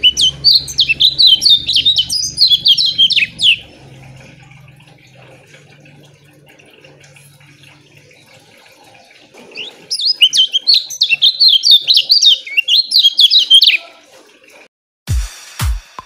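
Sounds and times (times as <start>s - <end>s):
bird singing rapid chirps: 0.0s - 3.9s, 9.5s - 13.9s.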